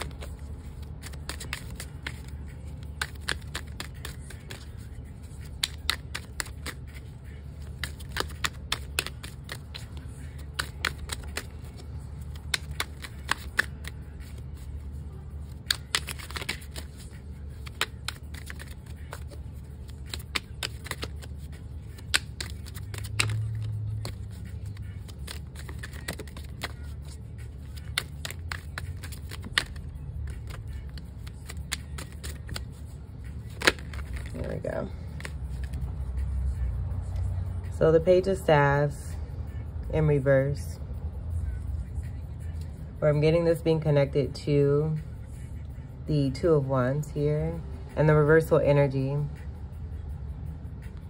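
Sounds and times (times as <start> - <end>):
cards shuffling: 0.0 - 35.9
steady low hum: 0.0 - 48.0.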